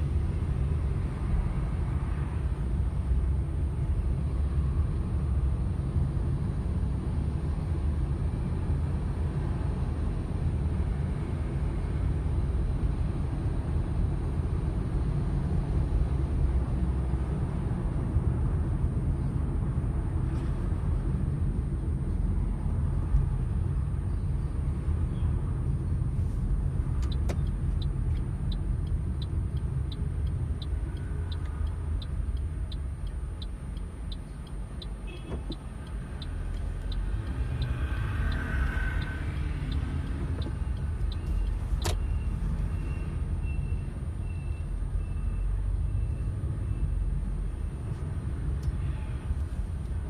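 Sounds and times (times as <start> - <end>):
car road rumble: 0.0 - 50.0
regular ticking: 27.0 - 42.0.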